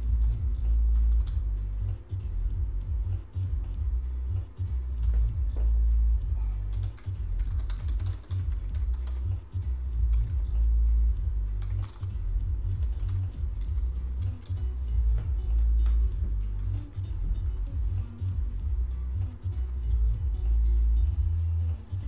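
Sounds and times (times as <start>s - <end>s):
low bass throb: 0.0s - 22.0s
computer keyboard typing: 6.7s - 10.6s, 11.6s - 13.4s.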